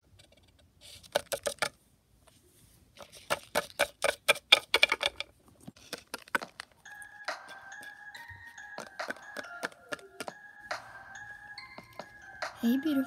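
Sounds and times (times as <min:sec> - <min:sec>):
plastic toys clicking on floor: 0:00.2 - 0:01.8, 0:03.0 - 0:06.9, 0:08.7 - 0:10.4.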